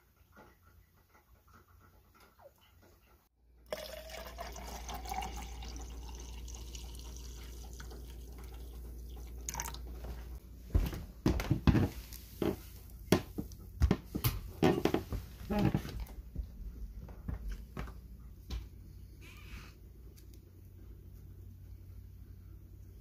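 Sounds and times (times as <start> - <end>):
coffee pouring into metal tumbler: 3.7 - 9.8.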